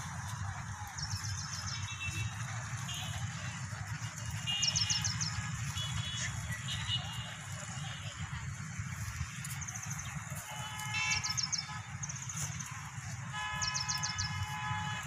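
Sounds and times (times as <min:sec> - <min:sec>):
birds chirping: 0:00.1 - 0:15.0
horn blasts: 0:10.4 - 0:15.0.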